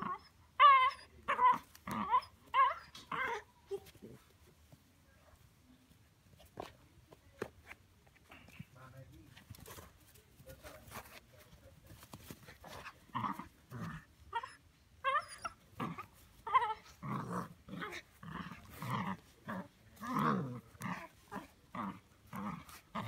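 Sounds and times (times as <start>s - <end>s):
puppy growling in play: 0.0s - 4.2s, 12.5s - 23.0s.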